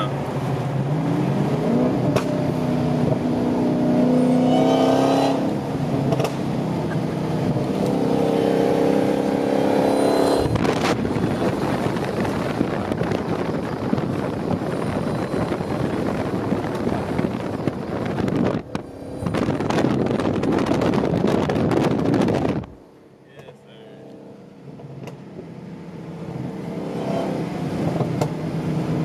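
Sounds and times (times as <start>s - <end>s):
car engine and exhaust running hard: 0.0s - 29.0s
exhaust crackling: 10.3s - 22.8s.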